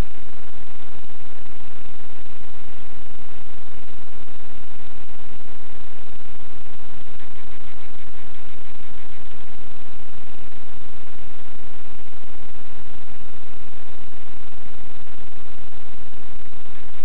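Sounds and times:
static hiss with faint buzz: 0:00.0 - 0:17.0.

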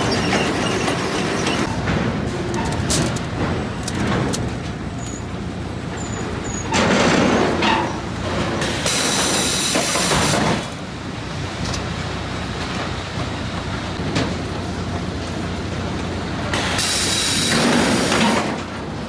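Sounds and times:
log conveyors clattering and rumbling: 0:00.0 - 0:19.0
machinery hiss: 0:08.6 - 0:10.7, 0:16.5 - 0:18.3.

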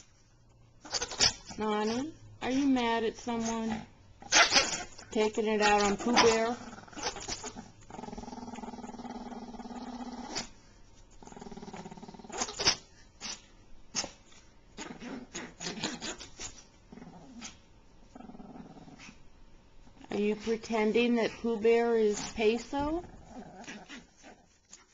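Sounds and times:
small dog growling: 0:05.6 - 0:10.6, 0:11.2 - 0:14.2, 0:14.8 - 0:19.2, 0:22.1 - 0:24.6.

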